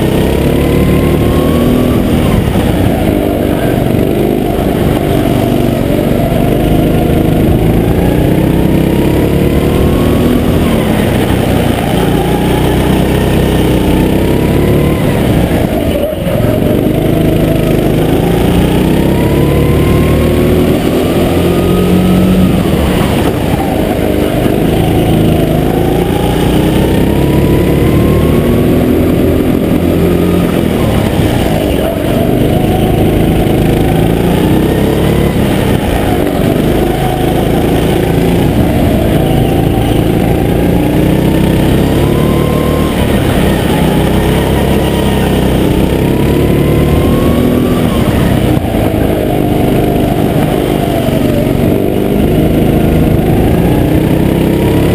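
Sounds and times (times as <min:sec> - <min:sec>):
go-kart engine accelerating: 0:00.0 - 0:54.9.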